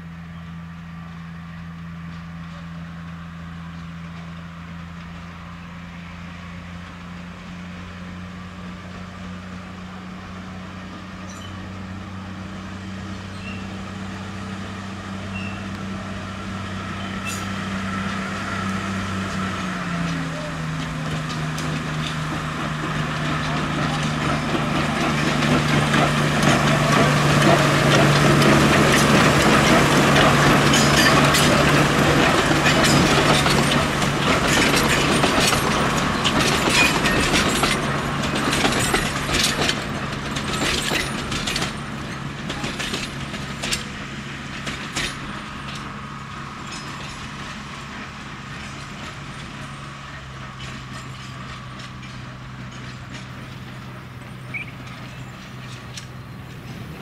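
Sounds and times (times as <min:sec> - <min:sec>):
diesel locomotive engine: 0:00.0 - 0:57.0
wheels and couplings clicking: 0:16.9 - 0:57.0.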